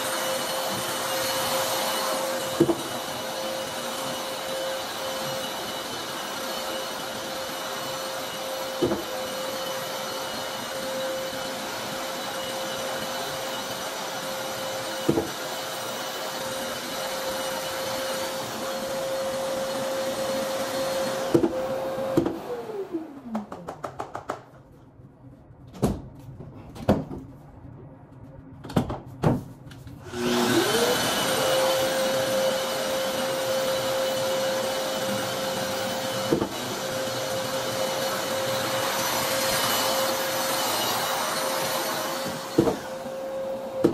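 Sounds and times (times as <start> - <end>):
dust extractor running: 0.0 - 23.6, 30.0 - 43.9
drywall sander whining: 0.0 - 23.9, 30.0 - 43.9.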